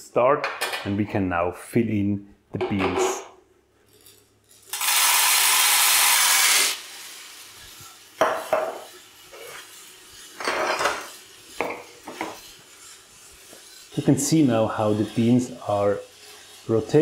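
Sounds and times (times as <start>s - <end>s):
coffee beans poured into hopper: 3.9s - 17.0s
beans tumbling in rotating drum: 4.0s - 17.0s.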